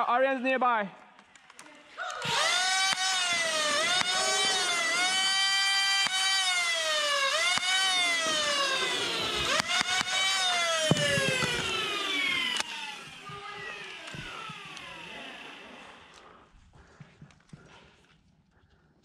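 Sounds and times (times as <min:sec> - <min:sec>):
sharp clicks: 0:01.2 - 0:15.5
blaster motors spinning up and down: 0:02.2 - 0:16.2.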